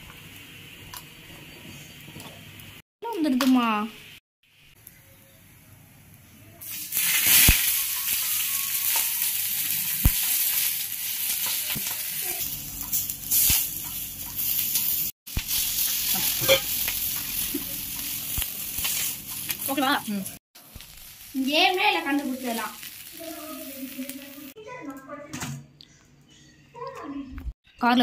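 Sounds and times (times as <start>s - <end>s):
hot oil sizzling on griddle: 6.6s - 24.6s.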